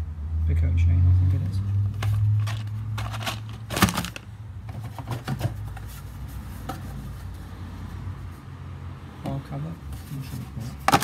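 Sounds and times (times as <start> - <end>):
cardboard box knocks and rustles: 3.7 - 5.8.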